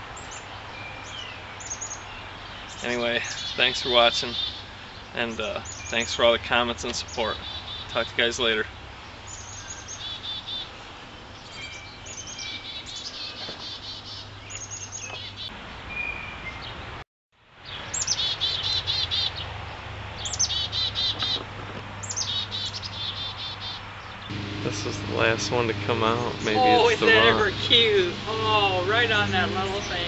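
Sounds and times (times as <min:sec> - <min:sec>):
chickadees calling: 0:00.2 - 0:15.5, 0:22.0 - 0:30.0
steady low hum: 0:24.3 - 0:30.0.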